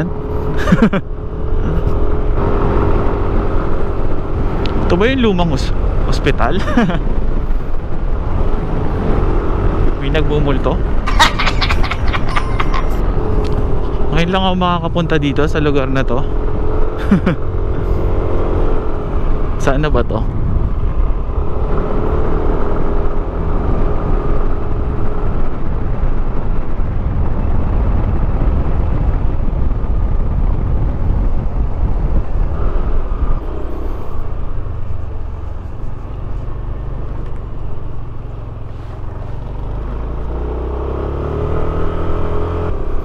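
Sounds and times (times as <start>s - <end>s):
wind on microphone: 17.7s - 43.0s.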